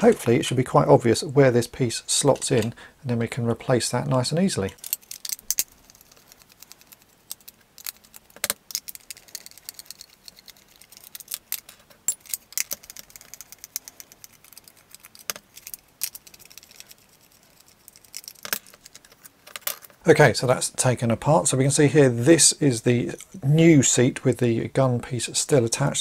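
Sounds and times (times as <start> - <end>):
plastic toy parts clicking and rattling: 4.6 - 20.0.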